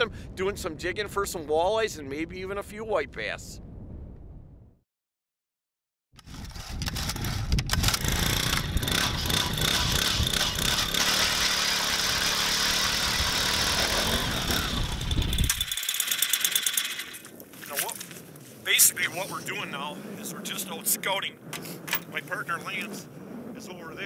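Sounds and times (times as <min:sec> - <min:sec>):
power ice auger drilling: 0:06.2 - 0:17.3.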